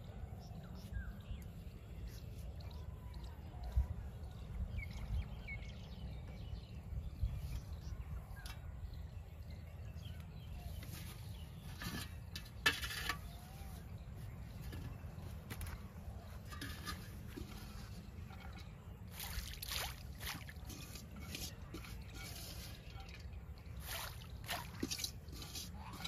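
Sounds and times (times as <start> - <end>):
wind rumbling on microphone: 2.7 - 12.4
scraping and clattering handling noises: 10.5 - 19.2, 20.3 - 26.0.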